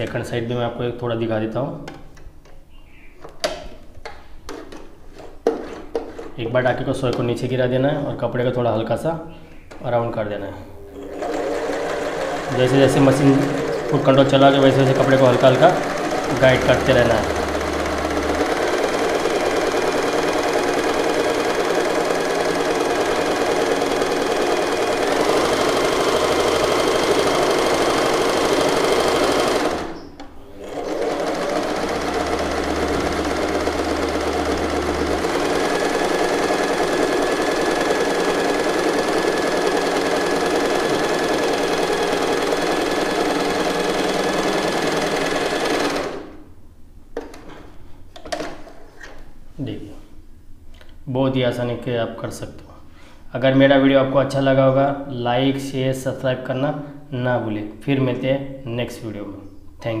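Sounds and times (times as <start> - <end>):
sewing machine running: 10.8 - 46.5.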